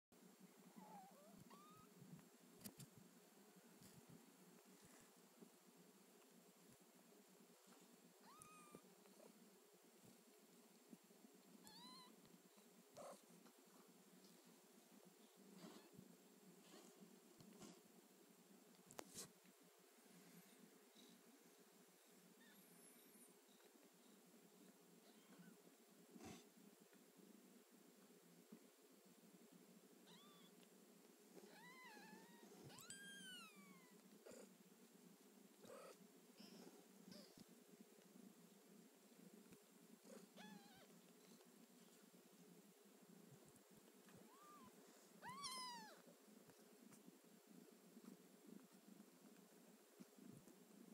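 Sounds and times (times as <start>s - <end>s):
kitten meowing: 8.2s - 8.8s, 30.1s - 30.5s, 40.4s - 40.9s, 44.3s - 46.0s.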